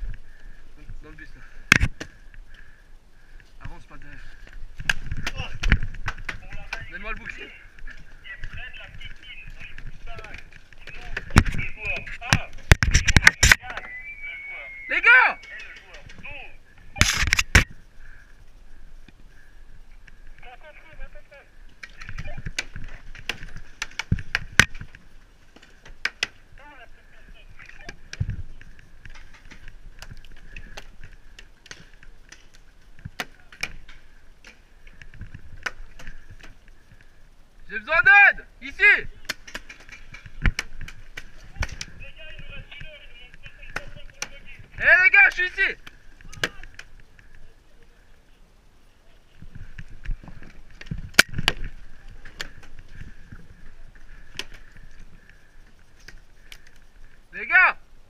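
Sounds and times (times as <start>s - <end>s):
paintball shots cracking: 39.2s - 41.9s.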